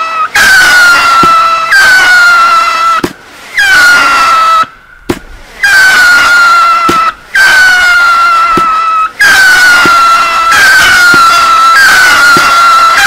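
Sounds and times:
whistling fireworks: 8.4s - 13.0s.

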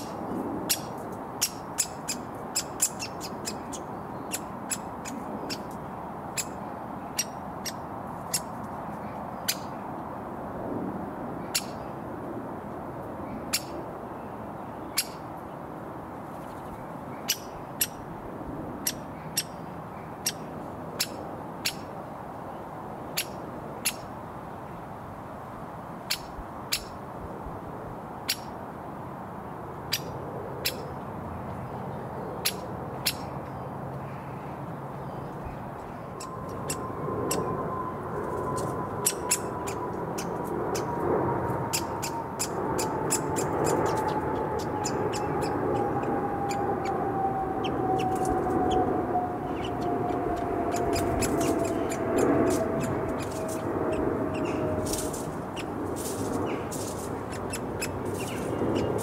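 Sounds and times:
woodpecker fledgling begging calls: 0.0s - 8.6s, 17.2s - 18.0s, 38.6s - 40.9s, 41.7s - 47.0s, 49.4s - 55.8s, 56.4s - 59.0s
road traffic hum: 0.0s - 59.0s
long drone falling in pitch: 36.0s - 59.0s.

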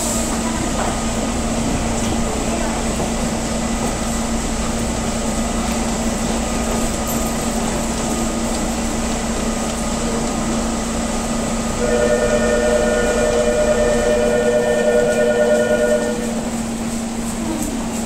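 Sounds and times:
electric train humming: 0.0s - 18.0s
station noise: 11.5s - 18.0s.

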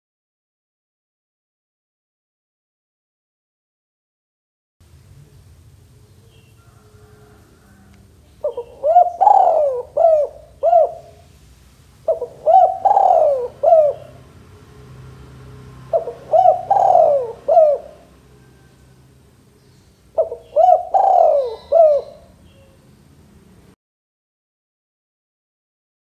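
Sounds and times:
dove cooing: 6.6s - 11.3s, 12.0s - 14.3s, 15.8s - 19.0s, 20.1s - 22.8s.

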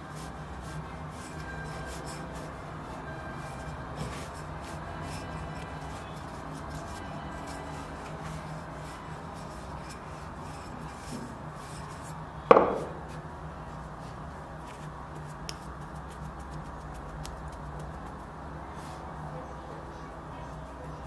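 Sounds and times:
hands working bread dough: 0.0s - 19.6s
rolling pin knocking on worktop: 12.5s - 13.0s.

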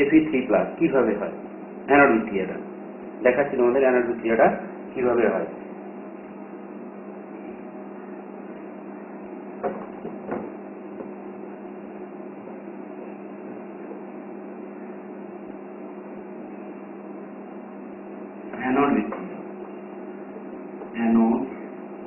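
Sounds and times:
low electrical hum: 0.0s - 22.0s
brief knocks: 9.6s - 11.2s.

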